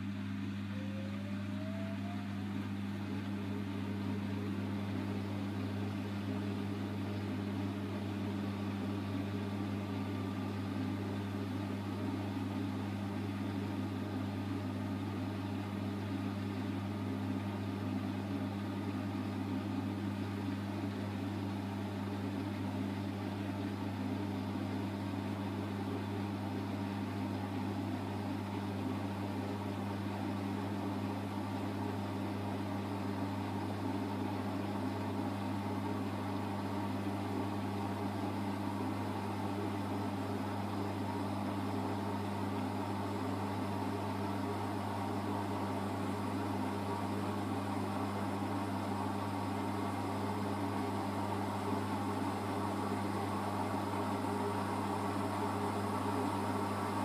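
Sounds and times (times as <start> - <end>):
low hum: 0.0 - 7.0
faint motor whine: 0.0 - 57.0.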